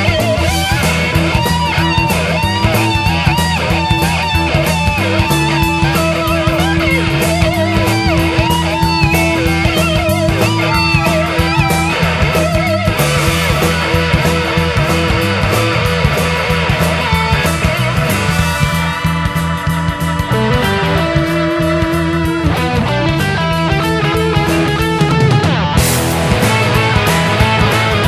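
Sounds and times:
bending lead guitar lines: 0.0 - 28.0
blues-rock band playing: 0.0 - 28.0.

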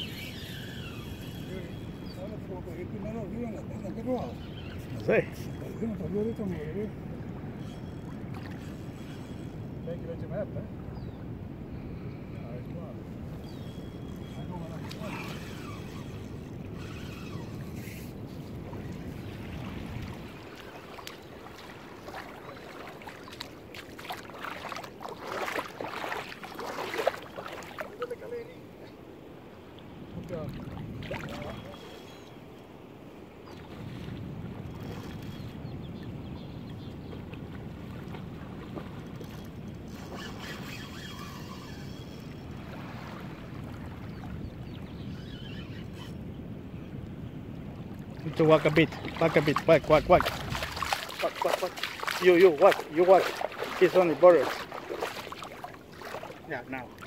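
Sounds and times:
shallow river water splashing: 0.0 - 9.9, 13.0 - 57.0
wind rumbling on microphone: 0.0 - 57.0.

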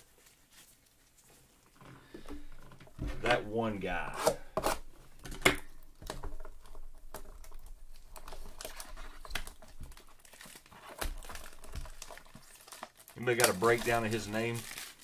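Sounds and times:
packaging crinkling and tearing: 4.3 - 15.0.

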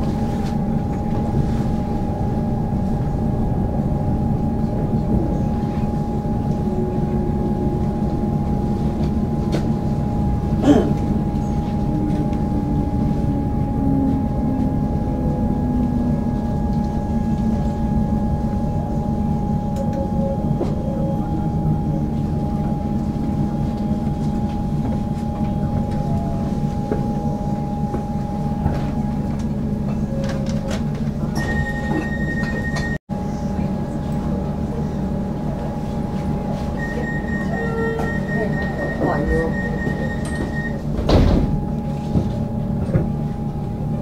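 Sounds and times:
train low rumble: 0.0 - 44.0
steady high tone: 36.4 - 40.8.

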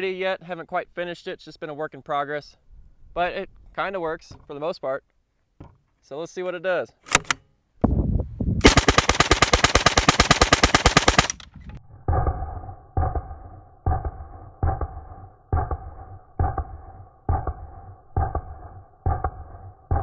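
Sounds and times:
submachine gun full-auto burst: 8.6 - 11.4.

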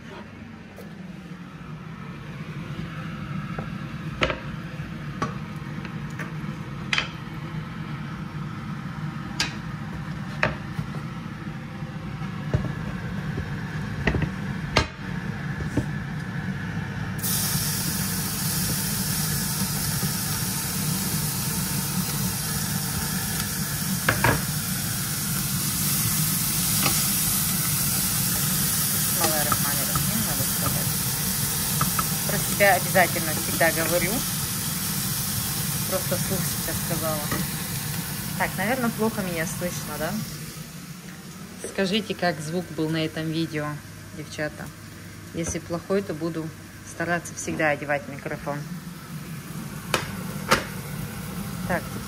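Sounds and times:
cooker hood hum: 0.0 - 52.0
onion sizzling in butter: 17.2 - 42.9.

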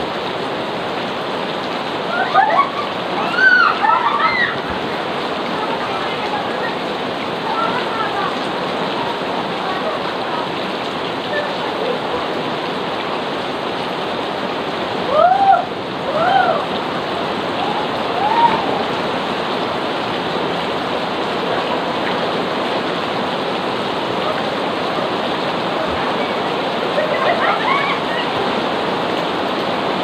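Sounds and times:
heavy rain pouring: 0.0 - 30.0
rising-and-falling cries: 2.0 - 6.9, 15.0 - 19.5, 24.2 - 28.8.

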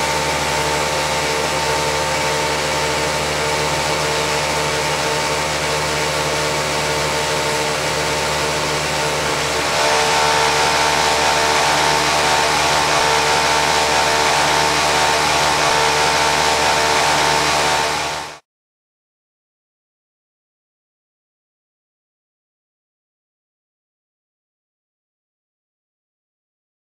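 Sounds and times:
sewing machine motor whine: 0.0 - 18.4.

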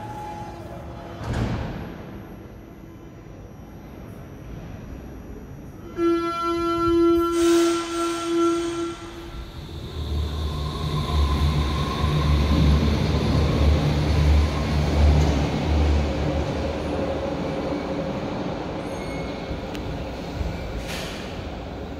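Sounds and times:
train motor whine: 4.2 - 21.5
electric train pulling out: 4.4 - 21.9.

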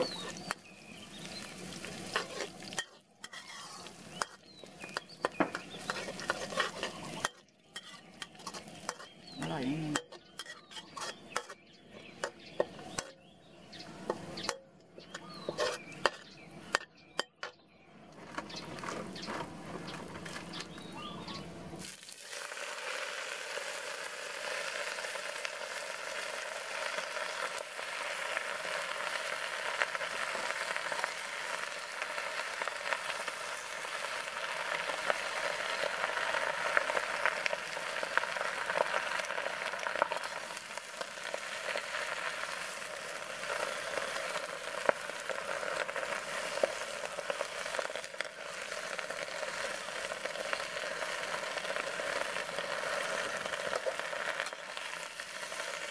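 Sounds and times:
food sizzling in a wok: 0.0 - 14.5, 15.2 - 16.2, 21.8 - 55.9
metal ladle scraping a wok: 1.6 - 9.3, 9.9 - 13.2, 14.0 - 16.9.

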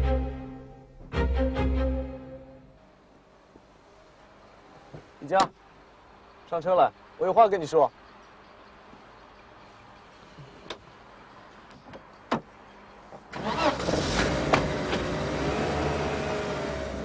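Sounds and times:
car door shutting: 13.4 - 15.2.

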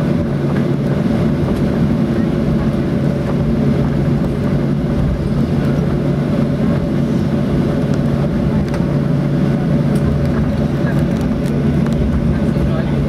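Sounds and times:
airplane cabin engine hum: 0.0 - 13.0.

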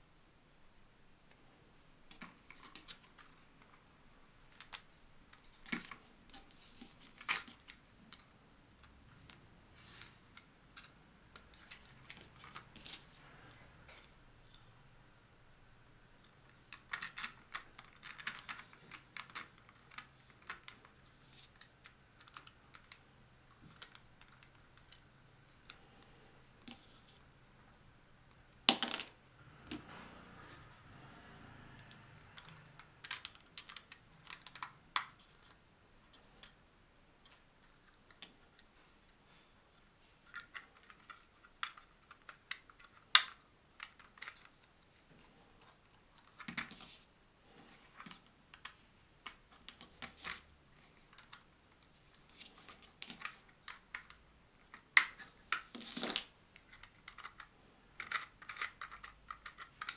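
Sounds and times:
plastic parts clicking: 4.5 - 9.4, 16.4 - 25.8, 31.8 - 36.6, 40.2 - 45.0, 47.6 - 59.9.

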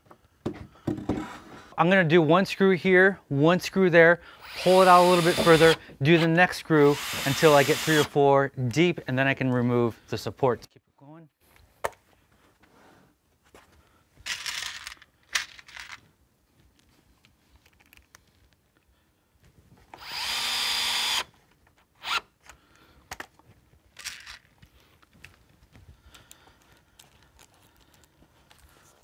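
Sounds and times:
cordless drill driving a screw: 4.4 - 8.2, 20.0 - 21.3, 22.0 - 22.3.

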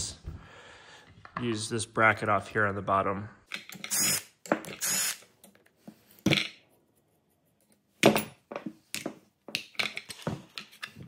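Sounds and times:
cordless driver spinning screws: 3.9 - 4.2, 4.8 - 5.2.

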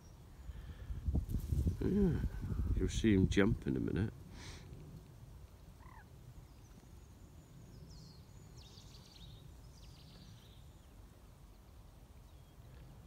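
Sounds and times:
low wind rumble: 0.0 - 13.0
distant birds chirping: 4.4 - 13.0.

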